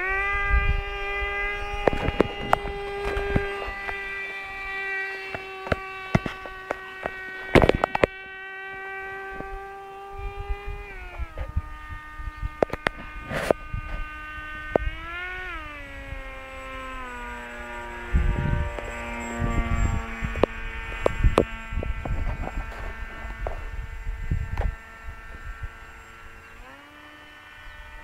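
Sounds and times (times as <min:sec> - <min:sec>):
low rumble on microphone: 0:00.0 - 0:28.0
model jet electric motor whine: 0:00.0 - 0:28.0
sharp microphone clicks: 0:05.2 - 0:08.2, 0:12.4 - 0:15.0.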